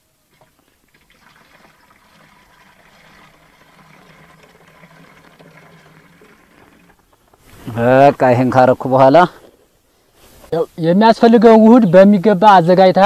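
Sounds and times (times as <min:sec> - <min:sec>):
liquid pouring into watering can: 0:00.3 - 0:07.8.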